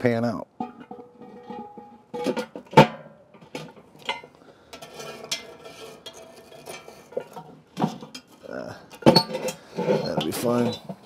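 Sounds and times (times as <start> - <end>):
metal lid clanking on pot: 0.6 - 8.3
tongs clinking and scraping: 4.0 - 10.9.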